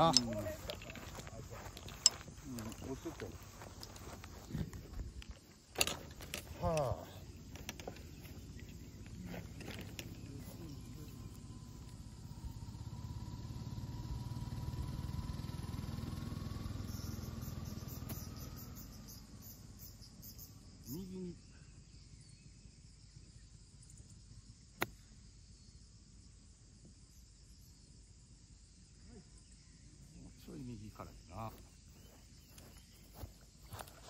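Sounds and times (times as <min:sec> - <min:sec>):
distant engine rumbling: 0:00.0 - 0:21.1
insects chirping: 0:00.0 - 0:34.0.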